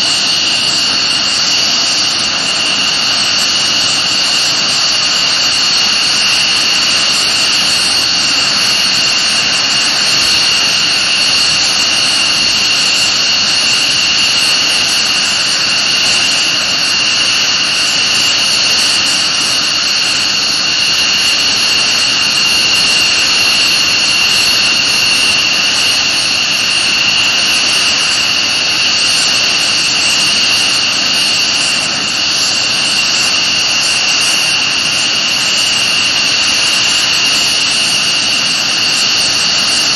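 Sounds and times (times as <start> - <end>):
jet engines roaring and whining: 0.0 - 39.9.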